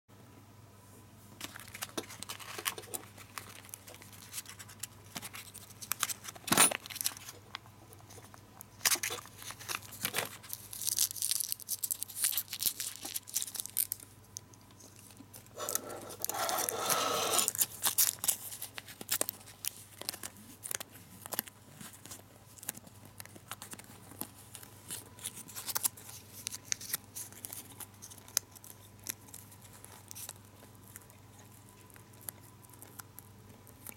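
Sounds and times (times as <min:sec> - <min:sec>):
foil gum wrapper crinkling: 0:01.4 - 0:33.9.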